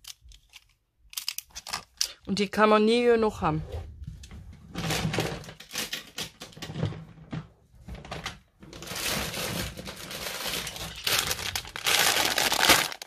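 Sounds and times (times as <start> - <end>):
plastic bags crinkling: 8.8 - 13.0.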